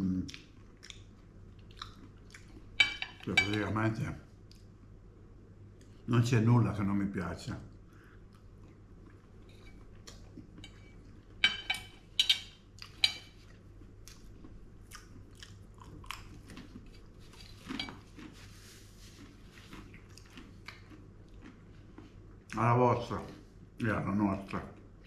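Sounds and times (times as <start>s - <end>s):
chewing food: 0.0s - 3.3s, 8.2s - 23.5s
cutlery clinking on ceramic plate: 2.8s - 3.7s, 10.6s - 13.4s.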